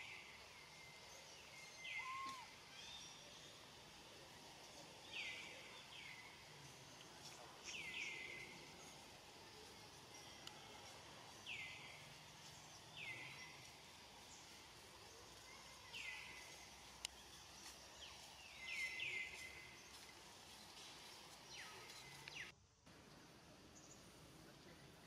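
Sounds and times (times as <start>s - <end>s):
faint outdoor background: 0.0s - 25.0s.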